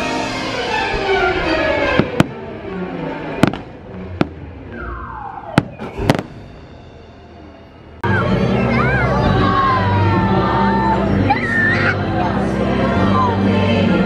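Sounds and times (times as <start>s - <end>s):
orchestral show music: 0.0s - 14.0s
firework bangs: 1.0s - 2.4s, 3.4s - 7.2s
falling firework whistle: 4.7s - 6.8s.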